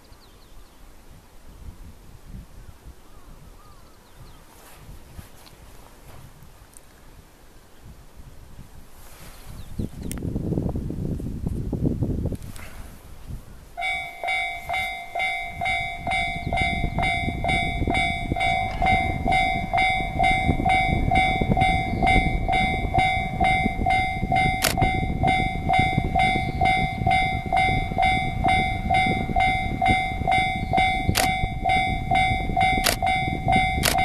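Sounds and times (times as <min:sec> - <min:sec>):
level crossing alarm clanging: 0:13.8 - 0:34.0.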